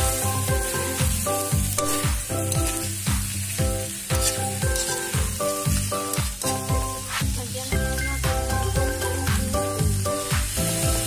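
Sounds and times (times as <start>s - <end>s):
metal spatula stirring: 0.0s - 3.0s, 3.9s - 7.4s
electronic background music: 0.0s - 11.0s
pork sizzling in a wok: 0.0s - 11.0s.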